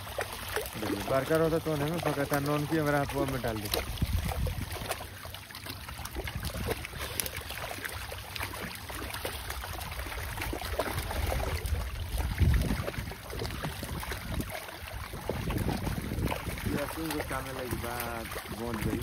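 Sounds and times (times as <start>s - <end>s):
water splashes: 0.0s - 19.0s
wind rumbling on microphone: 2.8s - 5.1s, 5.9s - 7.2s, 9.4s - 19.0s.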